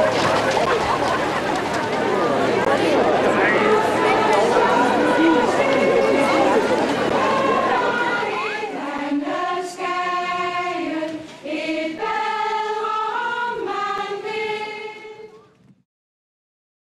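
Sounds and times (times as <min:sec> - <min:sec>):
choir singing sustained chords: 0:02.6 - 0:15.4.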